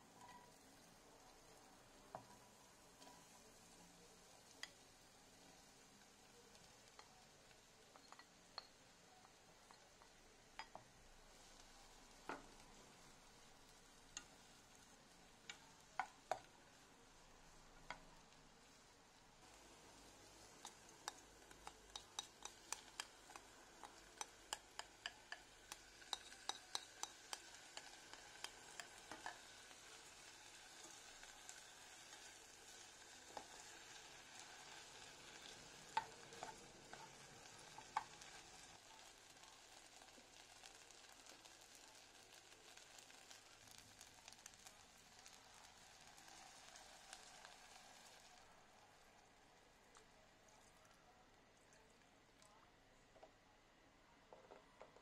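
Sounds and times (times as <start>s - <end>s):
vegetables and rice sizzling: 0.0s - 51.0s
utensil clicking against pan: 20.6s - 29.5s.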